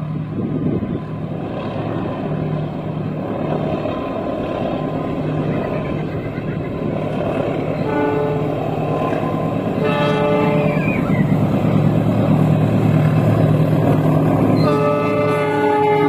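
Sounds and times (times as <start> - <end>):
train rumbling past: 0.0 - 16.0
locomotive multi-tone horn: 7.8 - 11.5, 14.4 - 16.0.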